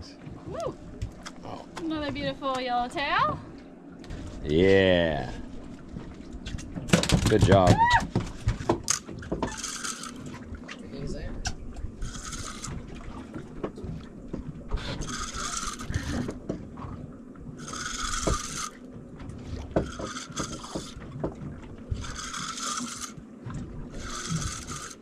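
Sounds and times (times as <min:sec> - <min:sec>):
low steady rumble: 0:00.0 - 0:25.0
fishing reel whirring: 0:08.9 - 0:10.3, 0:12.0 - 0:12.8, 0:14.8 - 0:16.4, 0:17.6 - 0:18.8, 0:19.8 - 0:21.0, 0:21.9 - 0:23.2, 0:23.9 - 0:25.0.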